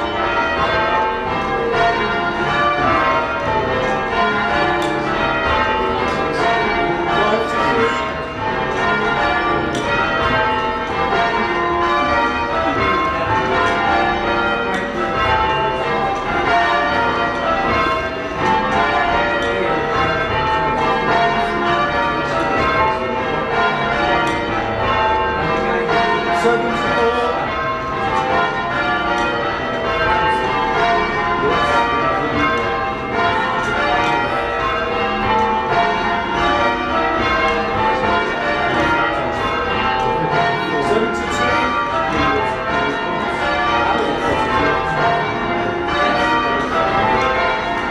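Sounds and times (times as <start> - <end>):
church bells ringing: 0.0 - 47.9.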